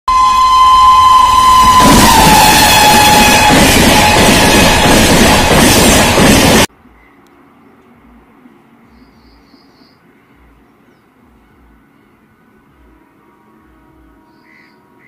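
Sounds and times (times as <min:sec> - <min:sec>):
passing train rumble and clatter: 0:00.1 - 0:06.7
bird chirp: 0:08.8 - 0:12.2, 0:14.3 - 0:14.8.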